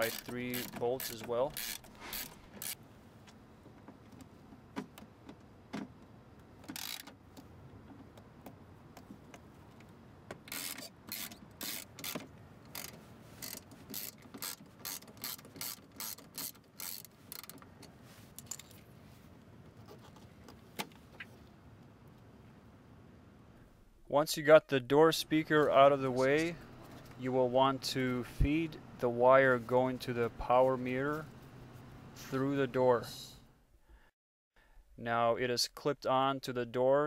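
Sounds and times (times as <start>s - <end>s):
ratchet wrench clicking: 0.0s - 2.8s, 6.7s - 7.1s, 10.5s - 17.6s.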